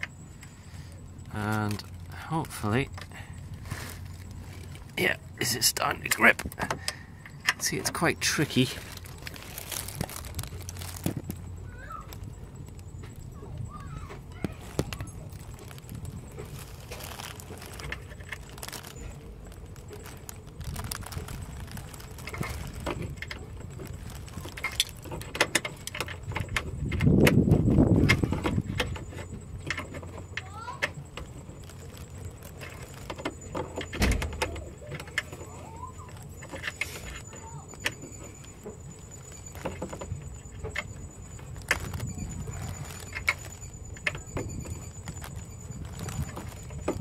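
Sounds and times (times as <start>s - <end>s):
clothing rustling: 7.7s - 11.4s, 14.5s - 25.2s, 35.2s - 47.0s.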